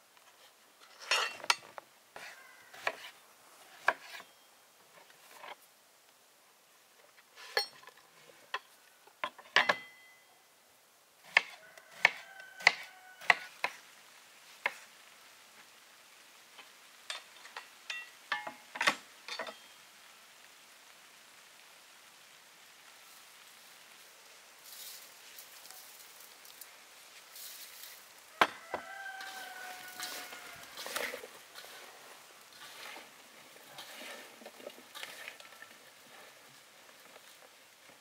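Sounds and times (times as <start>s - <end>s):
dishes and utensils clinking: 0.9s - 1.7s, 17.1s - 19.7s.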